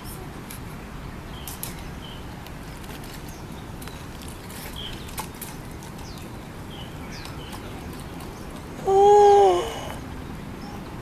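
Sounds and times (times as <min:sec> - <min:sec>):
birds chirping: 0:03.0 - 0:11.0.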